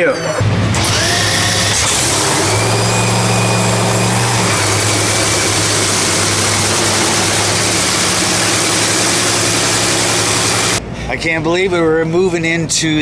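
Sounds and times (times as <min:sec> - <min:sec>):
race car engine idling loudly: 0:00.4 - 0:10.8.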